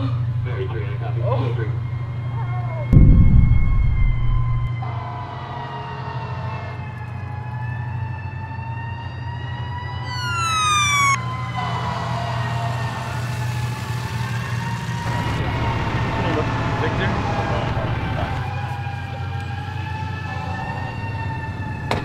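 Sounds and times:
steady low rumble: 3.0 - 4.8
emergency sirens wailing: 4.7 - 22.0
siren sweeping upward: 8.8 - 11.6.

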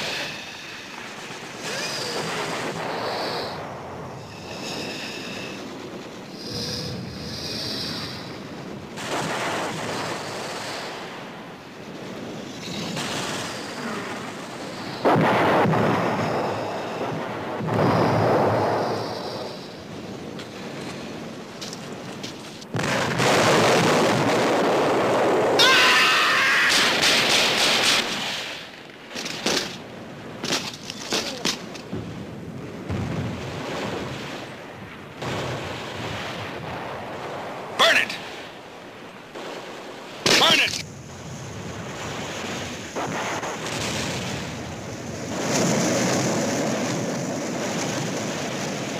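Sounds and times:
gunshots: 26.7 - 28.4, 40.2 - 40.8
battle noise: 37.8 - 38.2, 40.3 - 40.8.

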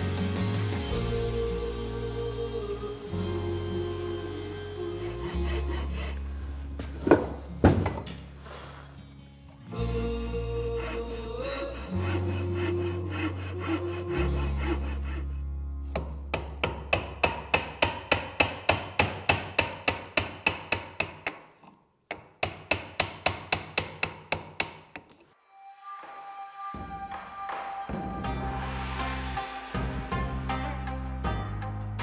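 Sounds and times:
chisel paring wood: 15.9 - 25.3.

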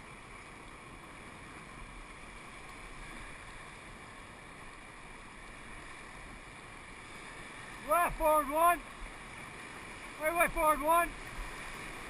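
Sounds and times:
whitewater rapids rushing: 7.7 - 9.0, 10.0 - 12.0.

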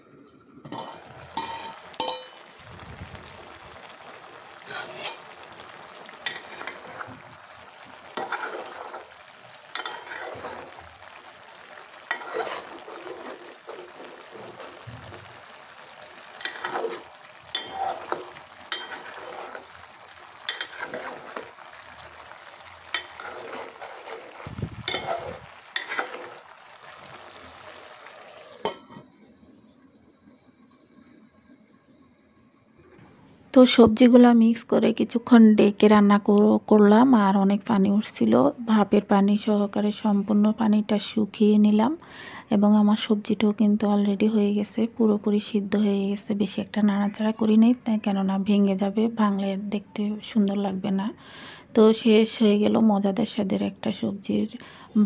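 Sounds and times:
vegetables sizzling in a pot: 0.6 - 32.0, 32.7 - 55.0
metal spoon scraping pot: 0.7 - 2.4, 4.6 - 5.2, 8.2 - 9.0, 9.8 - 10.8, 12.1 - 14.8, 16.4 - 19.6, 20.5 - 21.5, 22.9 - 26.4
pot lid clanking: 0.7 - 2.4, 24.8 - 26.3, 28.6 - 29.1.

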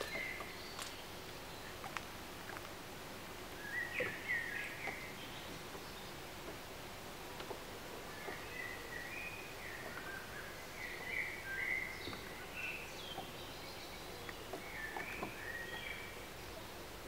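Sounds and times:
songbirds singing: 0.0 - 17.0
steady outdoor hiss: 0.0 - 17.0
faint clicks: 14.2 - 15.3.

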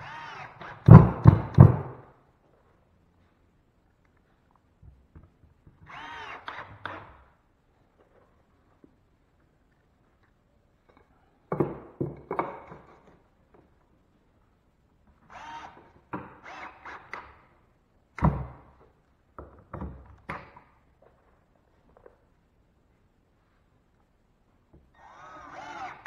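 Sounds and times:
drill driving screws: 0.0 - 2.0, 5.8 - 7.3, 15.3 - 17.4, 25.0 - 26.0
knocks and thumps: 0.8 - 2.0.

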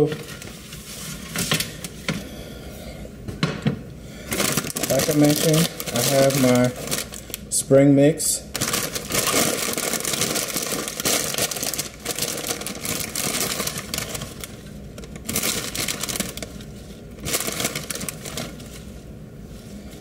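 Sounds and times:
plastic bag crinkling: 4.2 - 7.6, 8.5 - 19.1.

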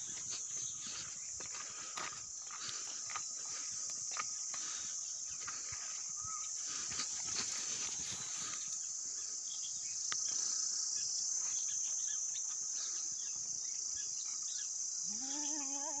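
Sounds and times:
rustles and clicks in dry grass: 0.0 - 9.0
insects chirring: 0.0 - 16.0.

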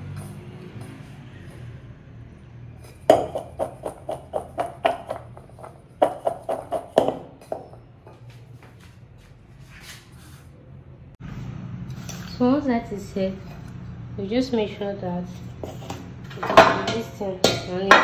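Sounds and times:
metal bowl knocking on tabletop: 3.1 - 7.8.

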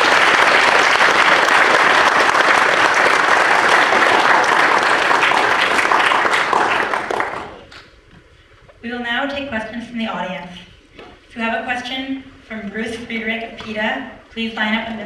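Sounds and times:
audience applauding: 0.0 - 7.7.

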